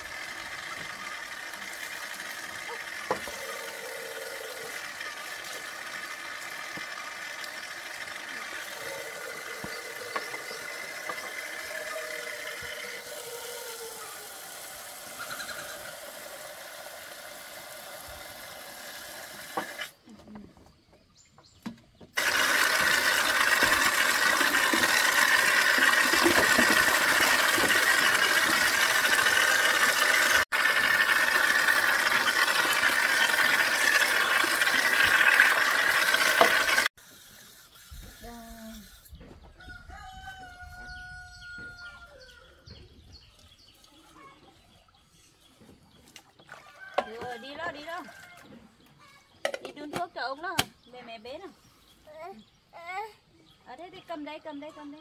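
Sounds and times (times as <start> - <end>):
water splashing in a plastic basin: 22.2 - 36.9.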